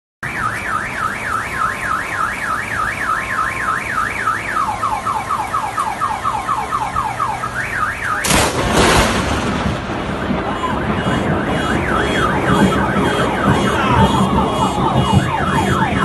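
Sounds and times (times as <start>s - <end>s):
car alarm sounding: 0.2s - 16.0s.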